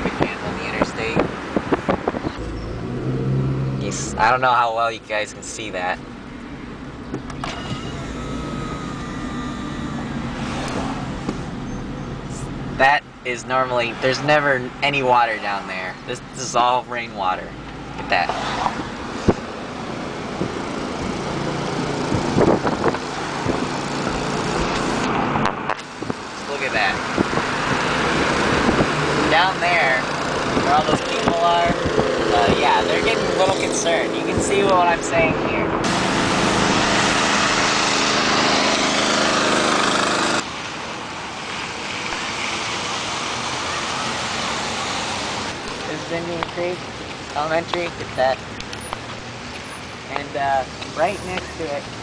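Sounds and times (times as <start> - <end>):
car engine and tyre noise: 0.0 - 52.0
outdoor rushing noise: 9.8 - 14.8
tyres hissing on wet road: 35.9 - 46.4.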